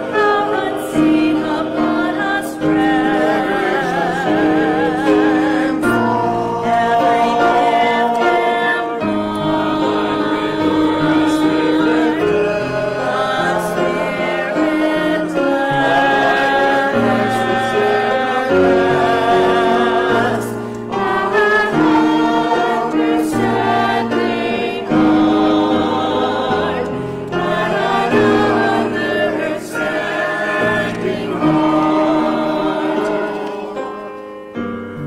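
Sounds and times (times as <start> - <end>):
church choir singing: 0.0 - 35.0
keyboard accompaniment: 0.0 - 35.0.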